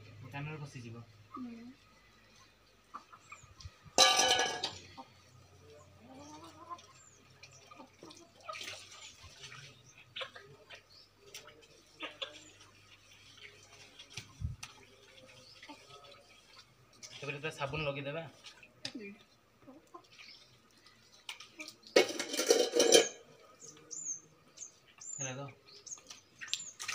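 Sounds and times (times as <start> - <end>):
small birds chirping: 0.2 - 4.0, 4.6 - 22.0, 23.4 - 26.9
water splashing onto concrete: 6.9 - 19.1, 25.9 - 26.9.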